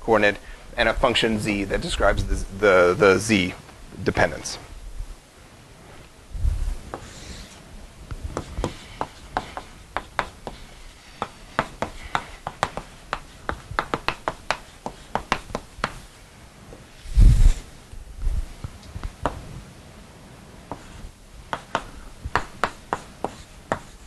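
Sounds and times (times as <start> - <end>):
chalk tapping on blackboard: 6.9 - 16.1, 20.7 - 24.0.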